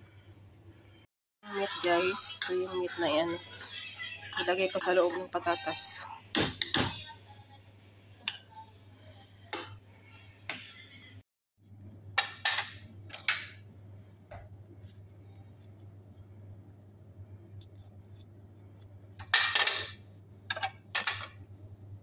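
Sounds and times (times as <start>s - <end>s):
low steady hum: 10.9s - 22.0s.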